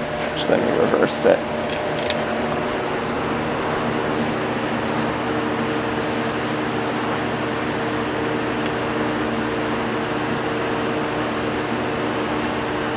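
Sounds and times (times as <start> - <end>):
ceiling fan blades swishing: 0.0 - 8.6.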